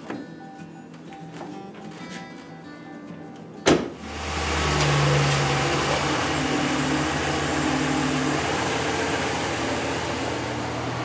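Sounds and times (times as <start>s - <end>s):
pickup engine idling: 4.0s - 11.0s.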